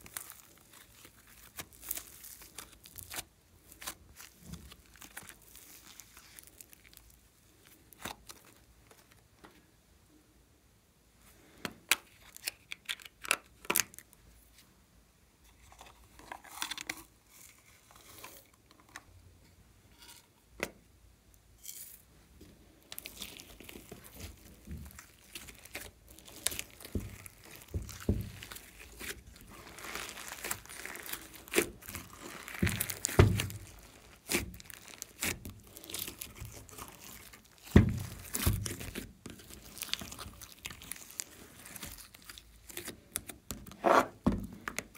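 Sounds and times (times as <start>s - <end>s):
slime stretching and squishing: 0.0s - 9.4s, 11.9s - 14.2s, 21.6s - 44.9s
crinkling: 0.0s - 9.7s, 11.8s - 14.7s, 15.4s - 19.1s, 21.3s - 44.9s
dull thumps: 32.6s - 33.7s, 37.7s - 38.8s.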